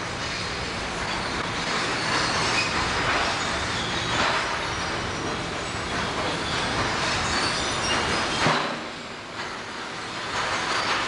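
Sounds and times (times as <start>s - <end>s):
clank: 5.9s - 11.0s.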